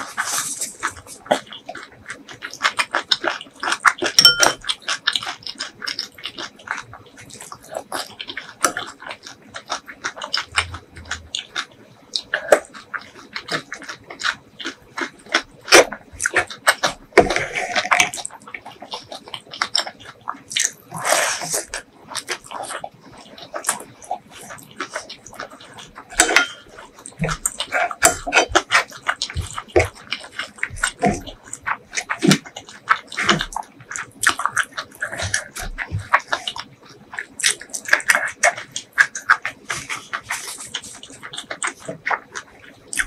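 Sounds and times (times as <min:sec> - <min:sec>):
wet chewing and lip smacks: 0:00.0 - 0:43.0.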